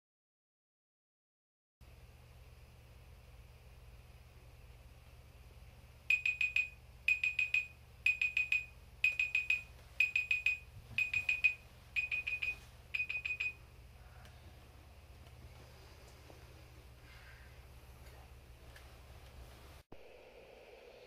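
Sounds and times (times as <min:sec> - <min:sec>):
phone alarm beeping: 0:06.1 - 0:13.6.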